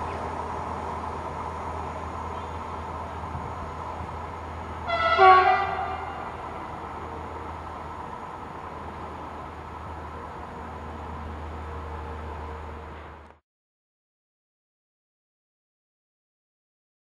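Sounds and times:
electric train pulling away: 0.0s - 13.3s
train horn blast: 4.8s - 6.7s.

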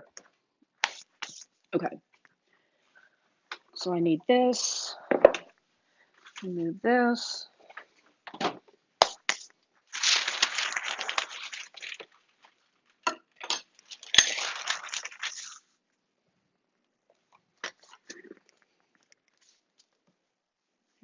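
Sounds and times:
crinkly rustling: 6.2s - 6.5s, 9.8s - 15.8s.

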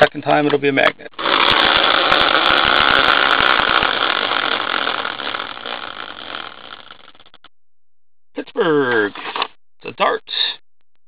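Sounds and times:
prize wheel pointer rattling: 1.2s - 7.4s.

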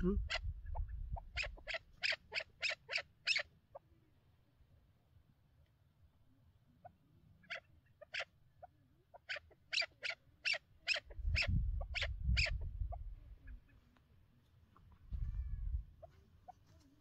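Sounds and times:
partridge calling: 0.1s - 3.9s, 6.8s - 13.8s.

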